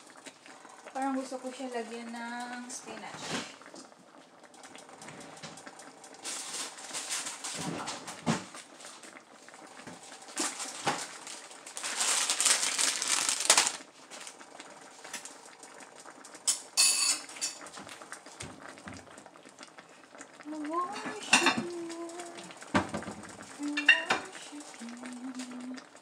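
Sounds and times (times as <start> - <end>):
plastic bag rustling: 6.2 - 15.4.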